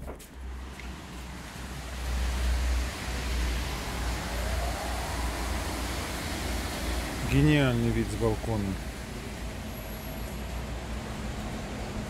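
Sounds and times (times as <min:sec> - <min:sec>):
street traffic hiss: 0:00.3 - 0:12.0
wind rumbling on microphone: 0:01.9 - 0:07.4.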